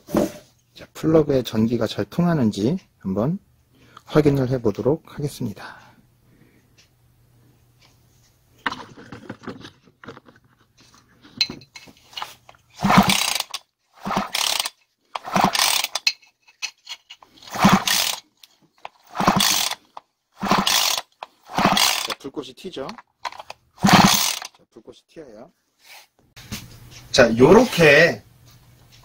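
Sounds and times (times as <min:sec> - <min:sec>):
chainsaw starter cord pulls: 0:12.1 - 0:16.1, 0:17.1 - 0:24.6
engine spinning over: 0:12.8 - 0:16.0, 0:17.5 - 0:18.2, 0:19.0 - 0:19.8, 0:20.4 - 0:22.2, 0:23.3 - 0:24.5.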